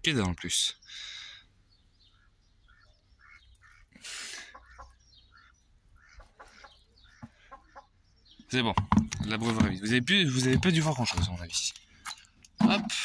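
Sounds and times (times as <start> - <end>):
chickens clucking: 2.0 - 9.8.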